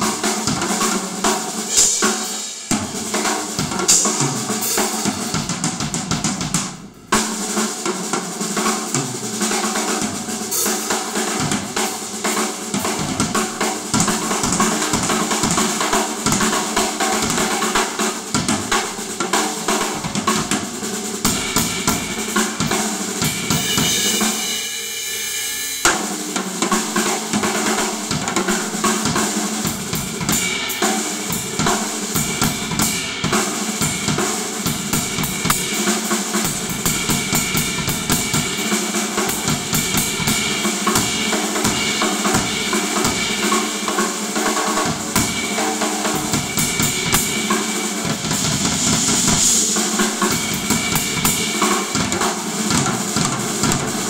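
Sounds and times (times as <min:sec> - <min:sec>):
drum kit playing: 0:00.0 - 0:54.0
ringing cymbal wash: 0:21.4 - 0:26.4, 0:44.6 - 0:52.0.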